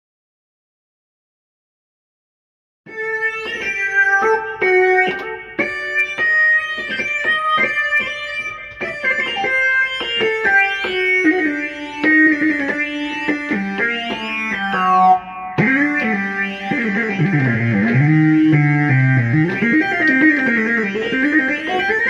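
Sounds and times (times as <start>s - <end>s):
synthesizer melody over chords: 2.9s - 22.0s.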